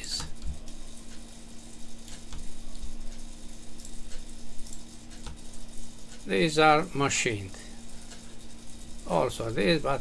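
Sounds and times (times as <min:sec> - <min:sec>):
steady low hum: 0:00.0 - 0:10.0
computer mouse clicks: 0:02.0 - 0:05.5.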